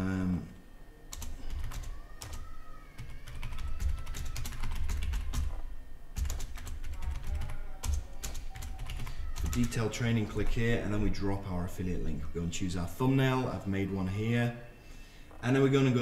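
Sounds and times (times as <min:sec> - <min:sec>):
computer keyboard typing: 0:01.1 - 0:05.6, 0:06.2 - 0:10.0.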